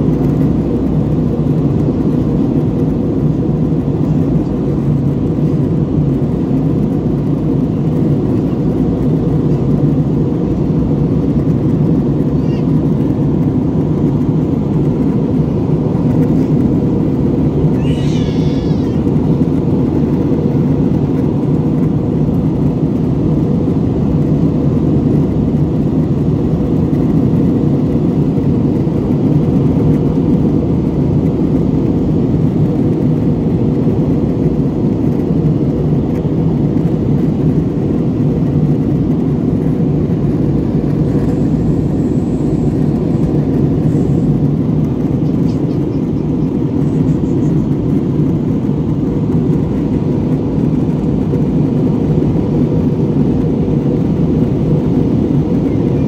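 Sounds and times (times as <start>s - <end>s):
jet engines in cabin: 0.0s - 56.0s
high-pitched wavering cry: 17.8s - 19.1s.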